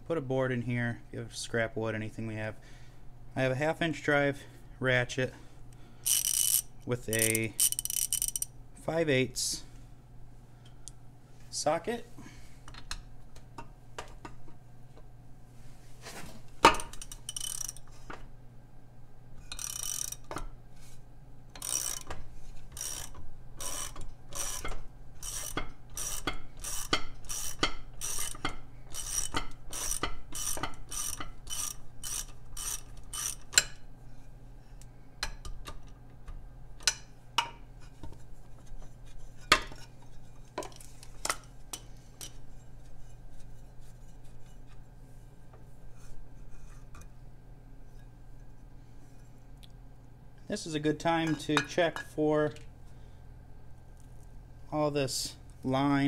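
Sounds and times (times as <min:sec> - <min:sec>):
ratchet clicking: 0:06.0 - 0:08.5, 0:16.9 - 0:17.8, 0:19.5 - 0:20.4, 0:21.6 - 0:33.6.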